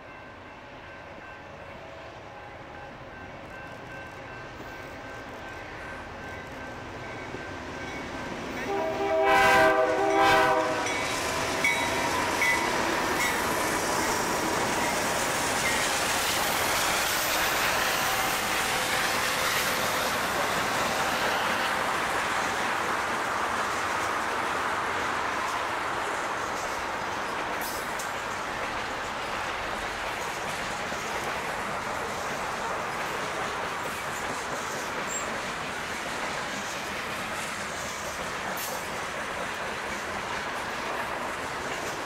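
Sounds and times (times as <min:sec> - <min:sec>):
diesel locomotives rolling by: 0:00.0 - 0:42.0
train horn: 0:08.6 - 0:12.1, 0:20.8 - 0:21.9.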